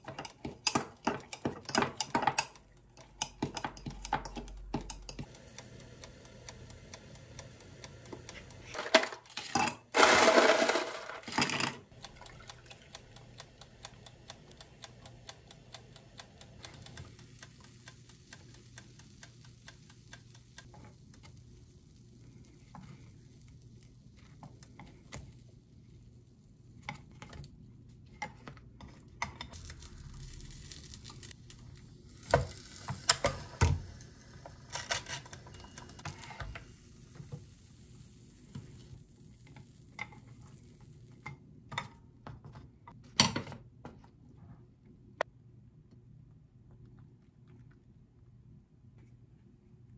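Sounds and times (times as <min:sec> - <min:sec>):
ice cubes rattling into a glass: 0:10.0 - 0:11.8.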